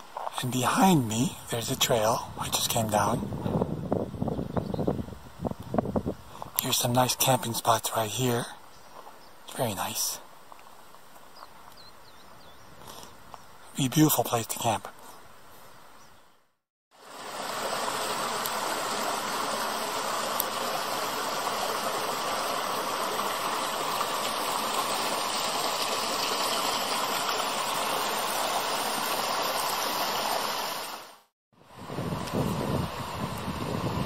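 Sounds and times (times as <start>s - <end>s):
water rushing over rocks: 17.0s - 31.3s.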